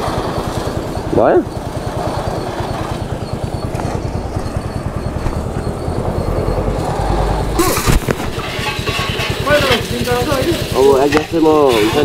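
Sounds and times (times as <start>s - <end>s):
pump motor chugging: 0.0s - 12.0s
hose water jet spraying: 6.7s - 12.0s.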